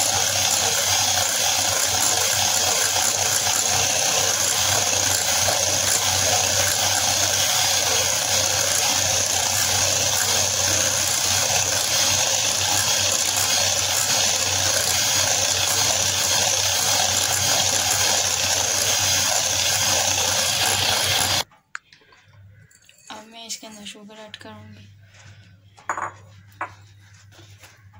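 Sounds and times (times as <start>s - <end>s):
electric hand mixer running: 0.0s - 21.4s.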